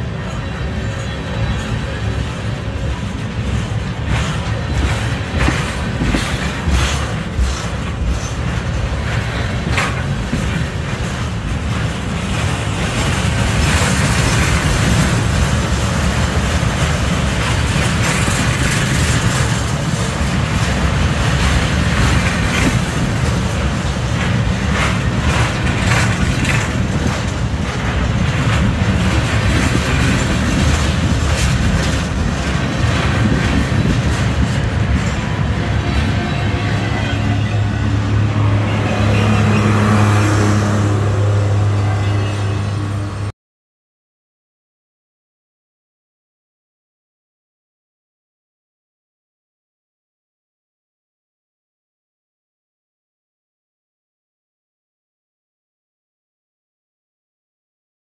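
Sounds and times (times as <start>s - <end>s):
sharp rail clicks: 0.0s - 38.5s
train wheels rumbling on rails: 0.0s - 43.3s.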